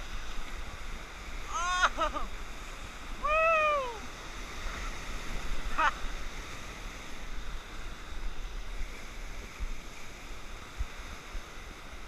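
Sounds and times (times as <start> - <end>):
whitewater rapids rushing: 1.4 - 6.6.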